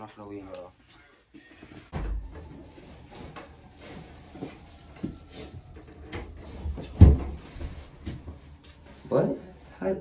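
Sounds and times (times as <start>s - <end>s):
footsteps coming down stairs: 1.6s - 8.8s.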